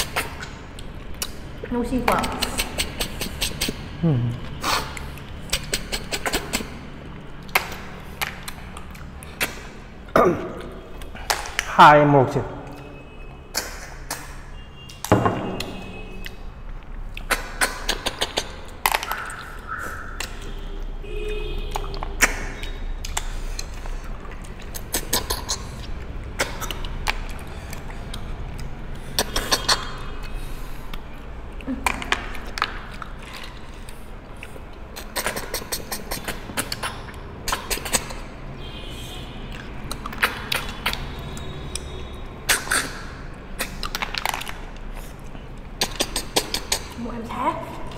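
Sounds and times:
sucking slurps: 0:33.0 - 0:38.4
snail shells clicking on bowls: 0:43.5 - 0:47.0.

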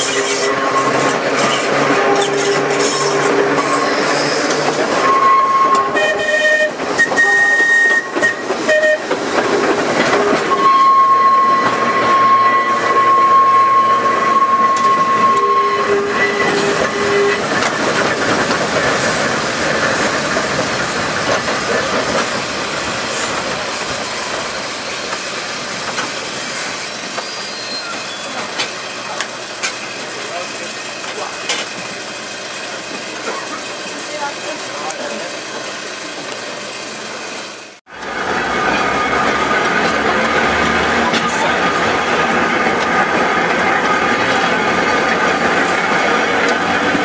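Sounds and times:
steel wheels squealing: 0:00.0 - 0:09.1, 0:10.0 - 0:17.7, 0:26.4 - 0:29.2
tram rumbling and clattering on rails: 0:00.0 - 0:47.0.

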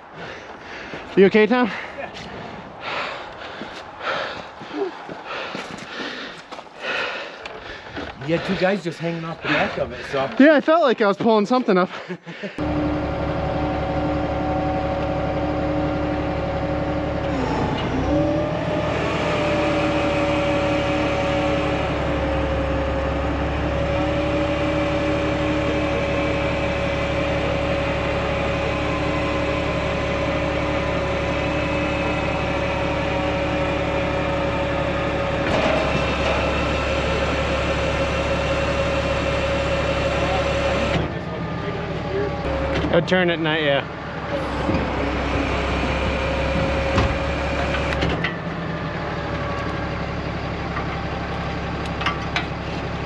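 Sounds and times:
truck engine and hydraulic crane: 0:12.5 - 0:53.0.

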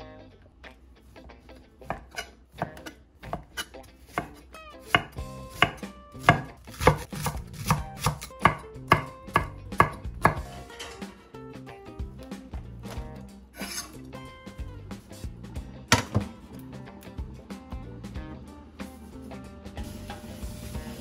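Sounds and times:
knife chopping on wooden board: 0:01.8 - 0:10.5, 0:15.9 - 0:16.3.

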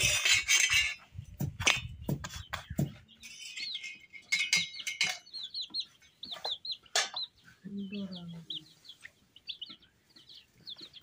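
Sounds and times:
bird chirping: 0:00.0 - 0:11.0
cookware knocking and clinking: 0:03.5 - 0:05.4.

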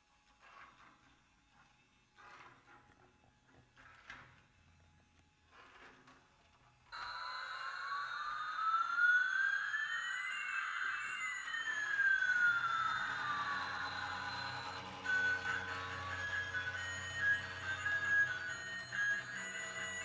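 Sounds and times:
rising and falling whistling tones: 0:07.0 - 0:20.0
steady high electronic tone: 0:07.0 - 0:20.0.

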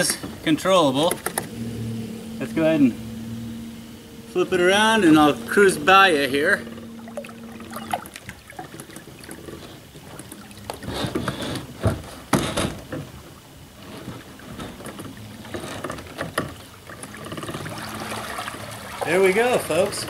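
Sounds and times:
electric motor low hum: 0:01.1 - 0:20.0
water lapping and splashing: 0:06.5 - 0:20.0.

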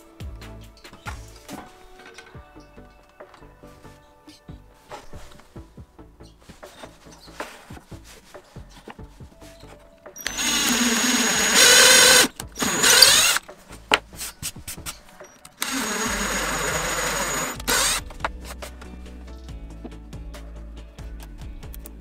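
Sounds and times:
power drill boring into plywood: 0:10.2 - 0:13.4, 0:15.6 - 0:18.2.

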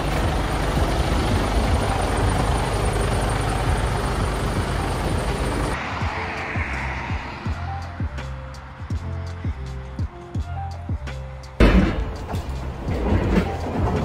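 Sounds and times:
lorry diesel engine idling: 0:00.0 - 0:05.9.

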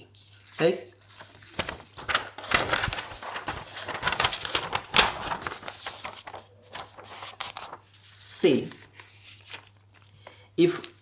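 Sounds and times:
paper rustling: 0:00.2 - 0:11.0.

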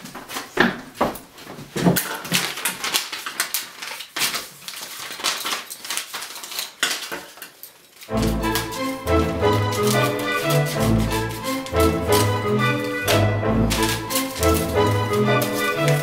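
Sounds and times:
paper and scissors handled: 0:01.4 - 0:16.0
music: 0:08.1 - 0:16.0.

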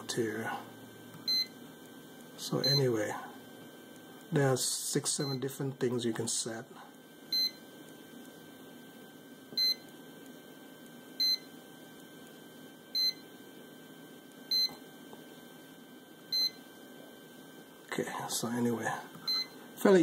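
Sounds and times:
short high thermostat beeps: 0:01.3 - 0:01.6, 0:02.6 - 0:02.8, 0:07.3 - 0:07.6, 0:09.6 - 0:09.8, 0:11.2 - 0:11.5, 0:13.0 - 0:13.2, 0:14.5 - 0:14.8, 0:19.3 - 0:19.6.

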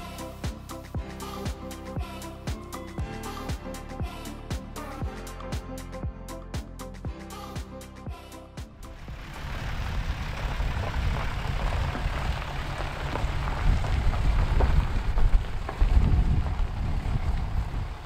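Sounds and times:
diesel engine rumble: 0:08.7 - 0:18.0
tyres crunching on gravel: 0:09.0 - 0:18.0.

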